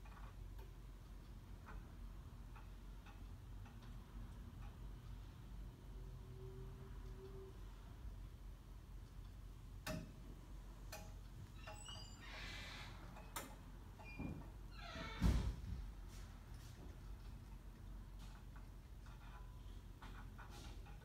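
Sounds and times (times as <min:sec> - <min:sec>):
squeaky creaks: 0:11.4 - 0:15.6.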